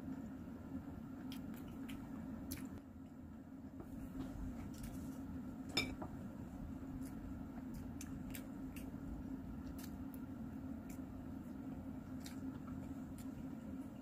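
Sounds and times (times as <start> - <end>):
steady low hum: 0.0 - 14.0
chewing clicks: 1.2 - 2.8.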